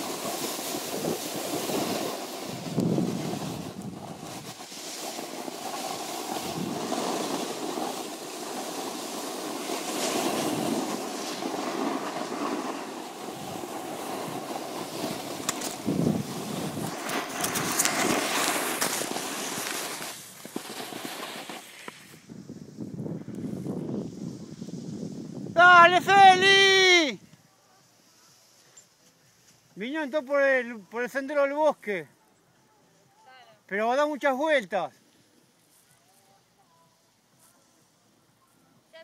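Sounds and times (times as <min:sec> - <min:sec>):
skis sliding on snow: 0:00.0 - 0:32.0, 0:32.9 - 0:39.0
wind buffeting microphone: 0:00.7 - 0:04.7, 0:06.3 - 0:07.0, 0:10.2 - 0:18.4, 0:22.1 - 0:26.4
sharp scrapes and knocks: 0:16.8 - 0:22.1.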